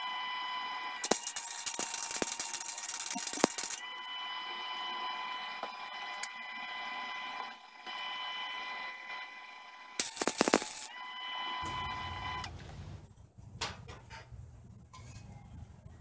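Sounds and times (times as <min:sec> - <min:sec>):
high-pitched whine: 0:00.0 - 0:12.5
welding arc crackling: 0:01.0 - 0:04.0, 0:10.0 - 0:11.0.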